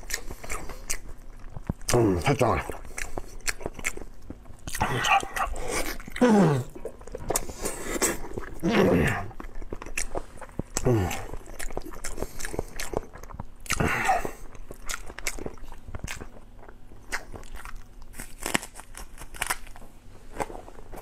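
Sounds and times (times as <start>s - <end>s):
wet chewing: 0.0s - 19.8s
crunching bites of scallion: 17.1s - 19.8s.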